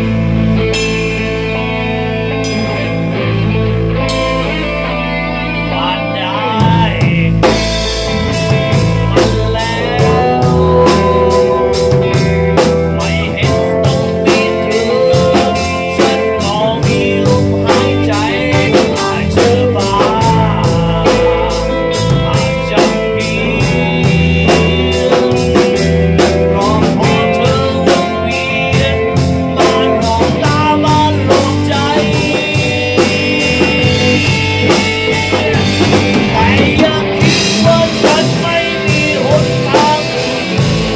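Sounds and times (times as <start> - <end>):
bass guitar: 0.0 - 40.9
drum kit beating: 0.0 - 40.9
guitar: 0.0 - 40.9
man singing: 2.6 - 40.9.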